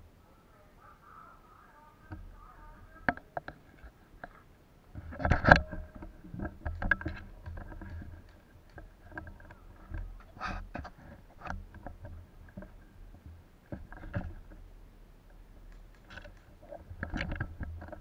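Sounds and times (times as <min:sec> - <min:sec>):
rifle and gear handling clicks: 0:15.6 - 0:18.0.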